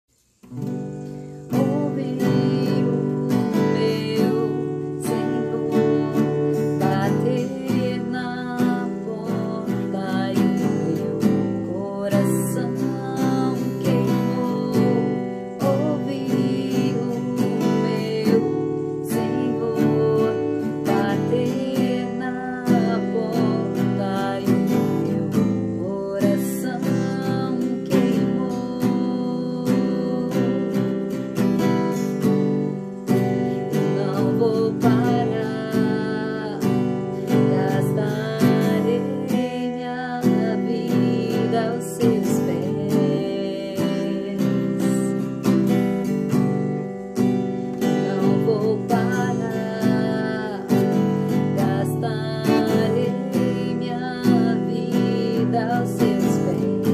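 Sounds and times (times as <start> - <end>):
acoustic guitar strumming: 0.1 - 56.9
woman singing: 0.4 - 56.9.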